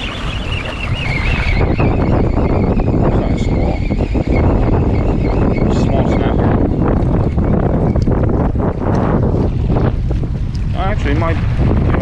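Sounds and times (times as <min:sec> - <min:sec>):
faint wavering high whine: 0:00.0 - 0:06.4
wind buffeting microphone: 0:00.0 - 0:12.0.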